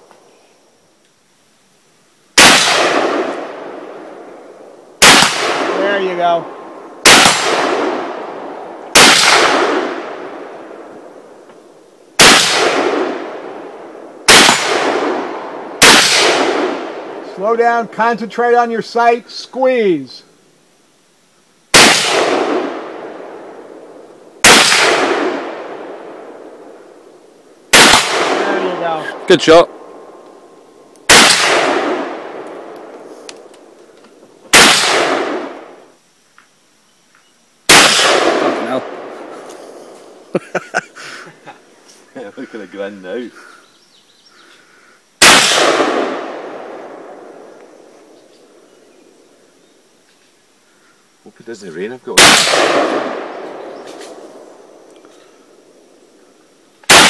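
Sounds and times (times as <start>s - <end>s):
rifle shots with echo: 2.4s - 11.3s, 12.2s - 17.4s, 21.7s - 30.2s, 31.0s - 33.7s, 34.5s - 35.8s, 37.7s - 39.4s, 45.2s - 48.6s, 52.1s - 54.8s.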